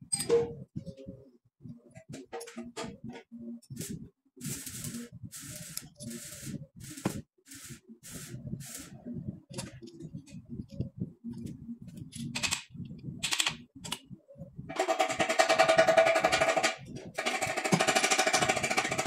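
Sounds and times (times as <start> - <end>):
short hissing bursts: 3.8 - 8.9.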